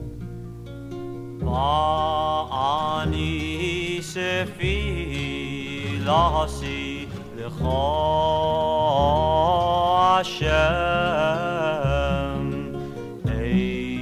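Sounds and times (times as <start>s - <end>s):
acoustic guitar and bass: 0.0s - 14.0s
male vocal group singing: 1.4s - 14.0s.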